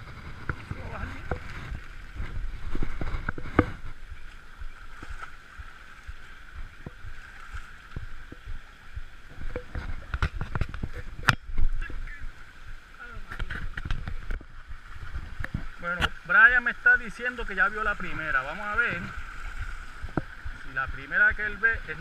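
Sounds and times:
river water rushing: 0.0s - 22.0s
sharp knocks and clicks: 9.3s - 11.7s.

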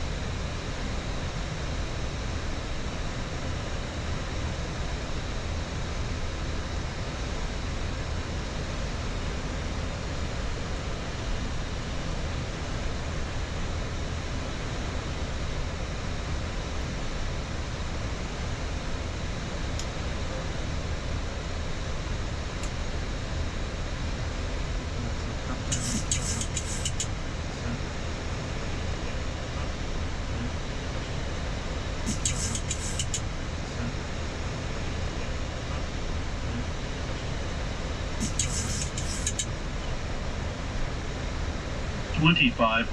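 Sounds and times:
low hum: 8.6s - 42.9s
aircraft cockpit rush: 32.1s - 33.2s.

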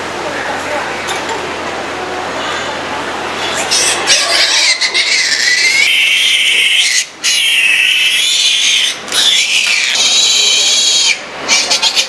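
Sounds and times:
piglet screaming: 3.4s - 12.0s.

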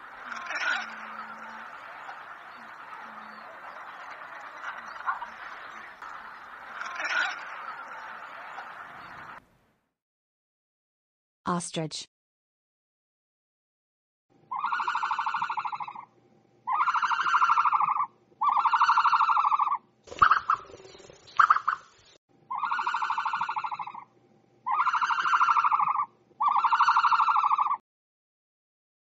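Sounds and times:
long pitched calls: 0.0s - 9.4s, 14.5s - 16.1s, 16.7s - 21.9s, 22.5s - 24.1s, 24.7s - 27.8s.

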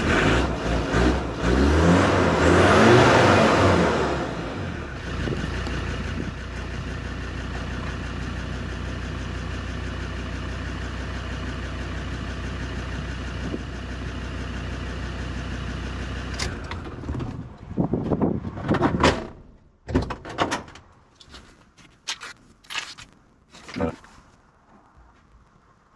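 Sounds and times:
car engine idling: 4.1s - 17.7s.

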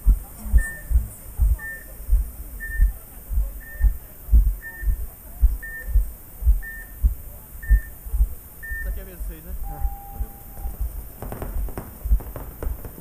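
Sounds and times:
dull low thumps: 0.0s - 13.0s
high electronic beep: 0.5s - 1.9s, 9.6s - 10.8s.

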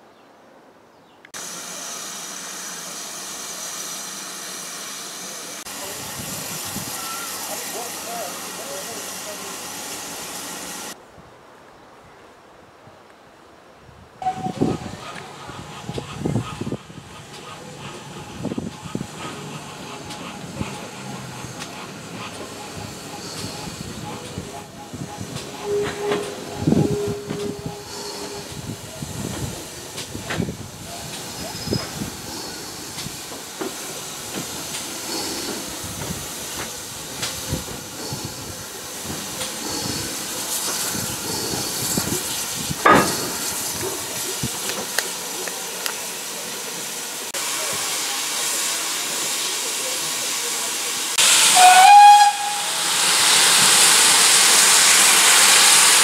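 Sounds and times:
steam locomotive running slowly: 1.3s - 11.0s, 14.2s - 56.0s
hissing steam: 1.4s - 11.0s, 14.2s - 56.0s
steam whistle blast: 6.9s - 7.5s, 14.2s - 14.8s, 25.5s - 28.6s, 51.2s - 53.2s.

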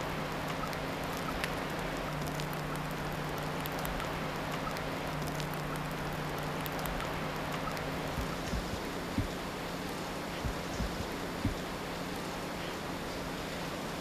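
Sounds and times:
light ticks: 0.0s - 9.4s, 10.3s - 11.7s
water dripping: 0.0s - 11.8s
low steady hum: 0.0s - 14.0s.

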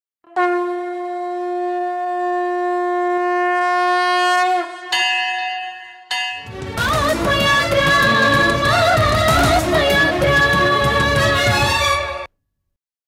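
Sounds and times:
long wind instrument note: 0.2s - 5.0s.

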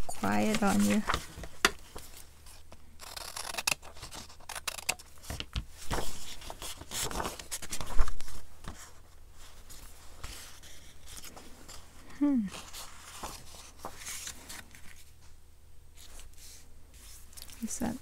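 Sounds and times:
paper rustling: 0.1s - 11.9s, 12.5s - 15.2s
scissors snipping paper: 3.0s - 5.4s.

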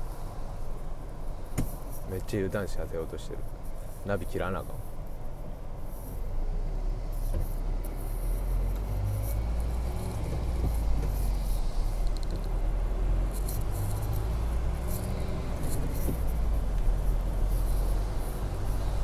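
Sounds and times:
car engine rumble: 0.0s - 19.0s
tyres on wet road: 6.2s - 19.0s.

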